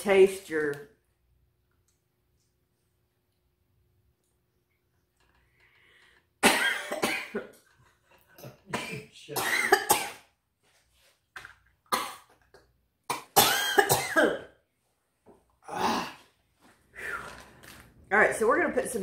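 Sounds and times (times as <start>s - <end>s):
woman coughing and spluttering: 6.4s - 7.6s, 8.7s - 10.3s, 11.9s - 12.5s, 13.1s - 14.6s.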